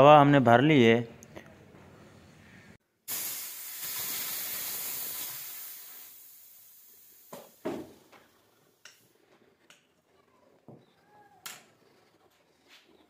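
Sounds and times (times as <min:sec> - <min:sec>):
high-pressure air hissing: 0:03.1 - 0:08.1.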